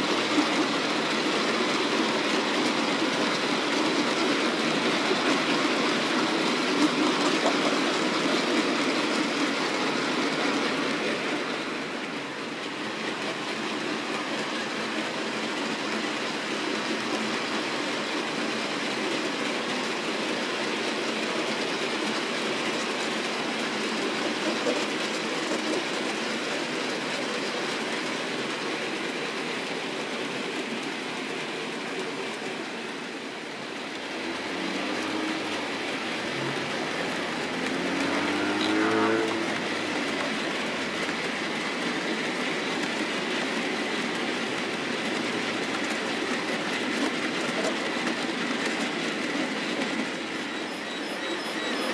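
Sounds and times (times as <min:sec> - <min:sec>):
model train wheels clattering: 0:12.6 - 0:33.3, 0:34.2 - 0:51.9.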